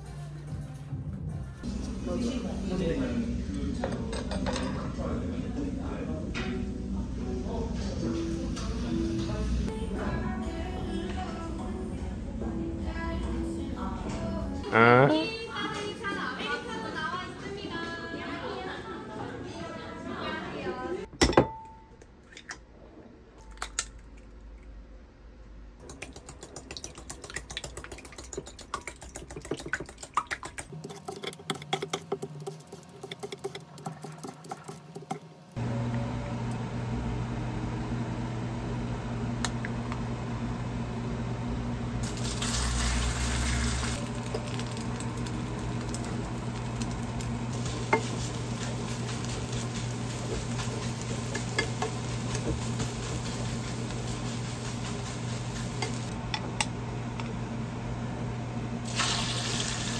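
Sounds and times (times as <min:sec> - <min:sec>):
steady low hum: 0:35.6 - 0:43.0, 0:43.6 - 0:58.8
pancake sizzling in a pan: 0:42.0 - 0:56.1, 0:58.9 - 0:59.9.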